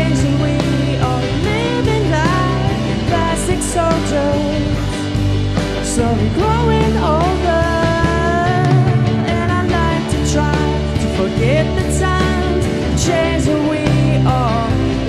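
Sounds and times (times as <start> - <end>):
drum kit with cymbal hits: 0.0 - 15.0
electric bass: 0.0 - 15.0
electric guitars: 0.0 - 15.0
lead vocal singing: 0.0 - 15.0.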